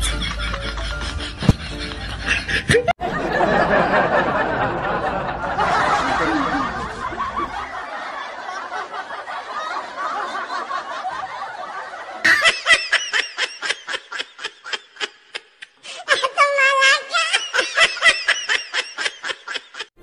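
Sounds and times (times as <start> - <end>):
high-pitched ha-ha laughter: 0.0 - 3.0, 12.1 - 19.9
people laughing: 0.0 - 20.0.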